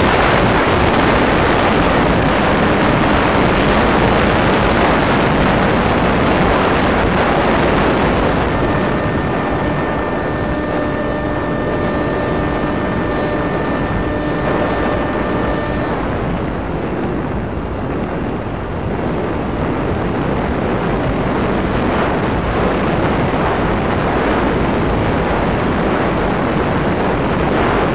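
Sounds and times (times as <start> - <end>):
model plane motor noise: 0.0 - 18.6
steady tonal whine: 0.0 - 27.9.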